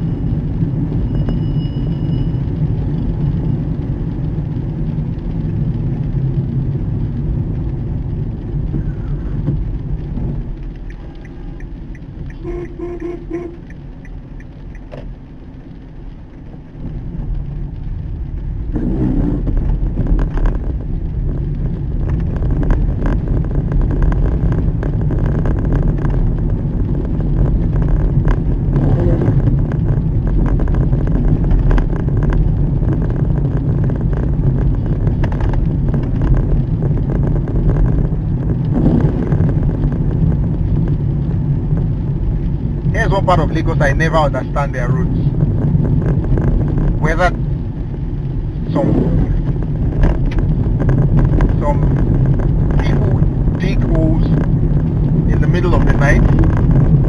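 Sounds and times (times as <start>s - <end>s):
car engine and tyre noise: 0.0s - 57.0s.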